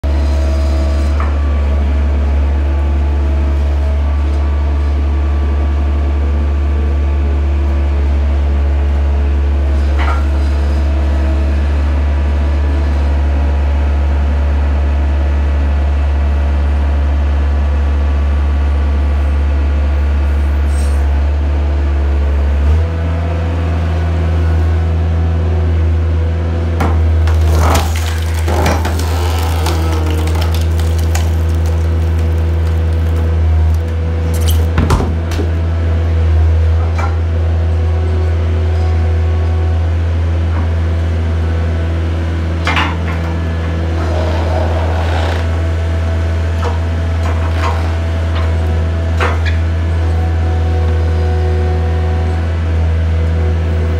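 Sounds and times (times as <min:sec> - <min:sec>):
skid steer engine running: 0:00.0 - 0:53.9
wood cracking and splintering: 0:26.8 - 0:35.6.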